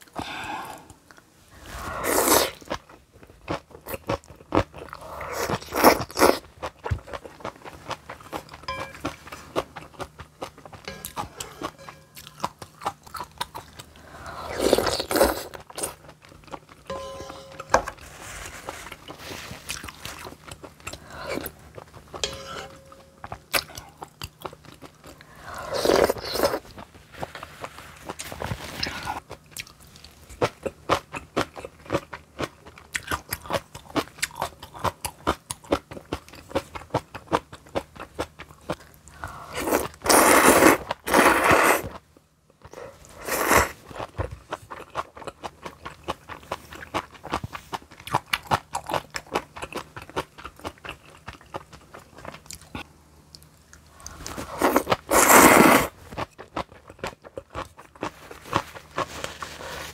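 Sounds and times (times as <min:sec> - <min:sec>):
noodle slurps: 0:54.6 - 0:55.9.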